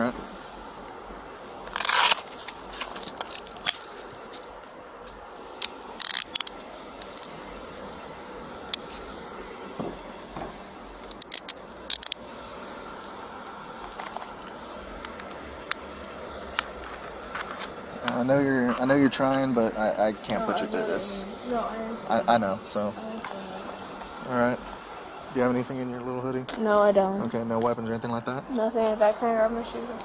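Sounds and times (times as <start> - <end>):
handcuffs clicking and ratcheting: 6.0 - 6.5, 11.0 - 12.2.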